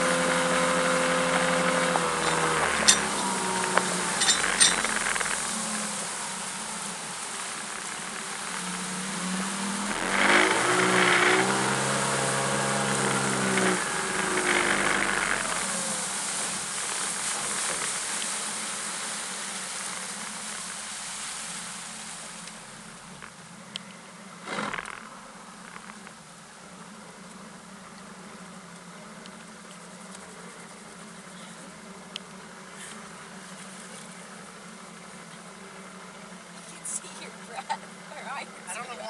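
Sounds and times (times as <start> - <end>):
rush of wind and water: 0.0 - 23.5
outboard motor running: 0.0 - 39.0.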